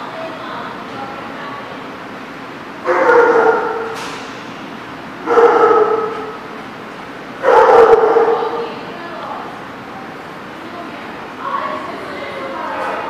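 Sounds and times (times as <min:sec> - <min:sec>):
small dog calling: 0:05.3 - 0:06.4.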